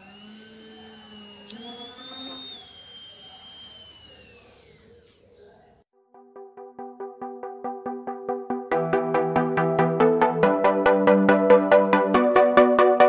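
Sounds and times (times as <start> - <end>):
electric motor whining: 0.0 - 5.6.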